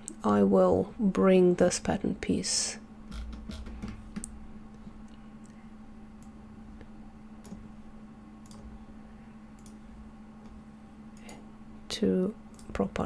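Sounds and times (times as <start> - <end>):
steady low hum: 0.0 - 13.0
computer mouse clicks: 8.4 - 8.7, 9.6 - 9.8, 12.5 - 12.8.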